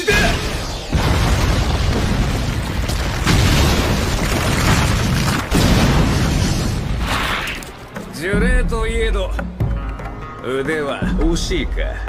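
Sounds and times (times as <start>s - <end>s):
explosion rumble: 0.3s - 7.5s.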